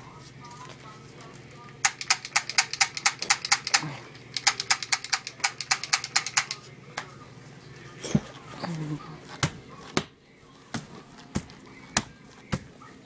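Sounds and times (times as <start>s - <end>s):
toy pistol clicking rapidly: 1.8s - 6.6s.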